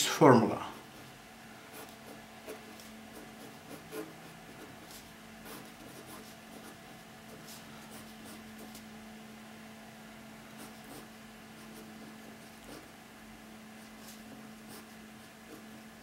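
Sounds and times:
steady low hum: 0.0s - 16.0s
pen scratching on paper: 1.7s - 8.8s, 10.6s - 12.9s, 13.8s - 15.7s.

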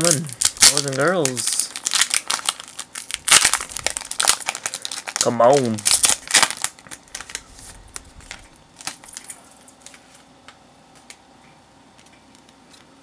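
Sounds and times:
foil wrapper crinkling: 0.0s - 11.2s
cards being handled: 4.2s - 11.2s.

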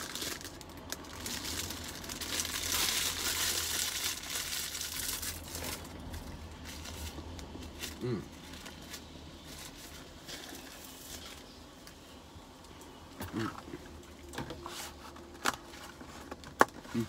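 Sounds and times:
paper wrapper rustling: 0.0s - 11.8s.

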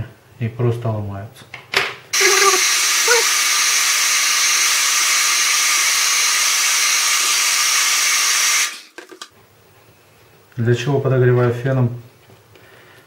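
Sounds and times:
hair dryer blowing: 2.2s - 8.9s.

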